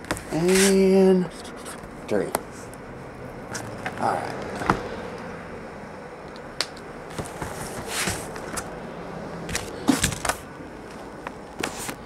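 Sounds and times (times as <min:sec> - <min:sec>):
cardboard scraping rustles: 0:07.1 - 0:08.7, 0:11.6 - 0:12.0.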